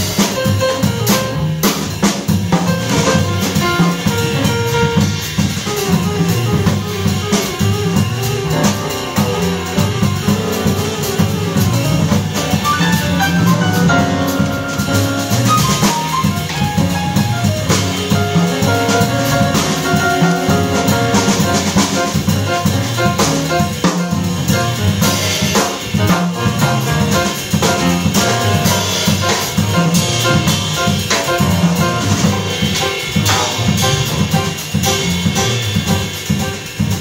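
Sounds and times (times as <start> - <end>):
drum kit with cymbals: 0.0 - 37.0
grand piano runs and chords: 0.0 - 37.0
plucked double bass: 0.0 - 37.0.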